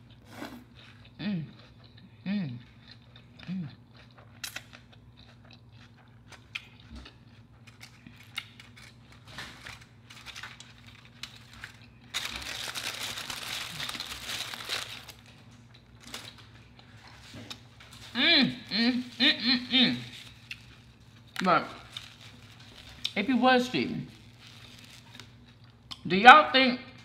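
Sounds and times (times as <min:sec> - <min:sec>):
quiet chewing clicks: 0:00.8 - 0:08.8
food wrapper crumpling: 0:07.4 - 0:18.2, 0:20.0 - 0:25.9.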